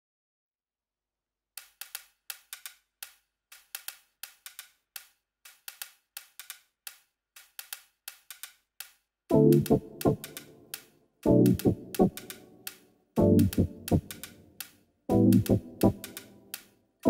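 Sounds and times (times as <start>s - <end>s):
electronic percussion high ticks: 9.3s - 16.3s.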